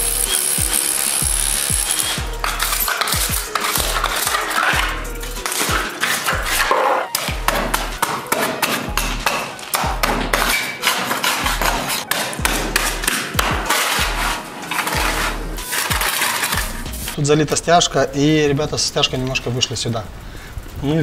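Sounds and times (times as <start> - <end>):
music with heavy bass beat: 0.0 - 8.1, 8.8 - 10.5, 11.4 - 17.2
hatchet knocking on concrete: 7.2 - 10.6.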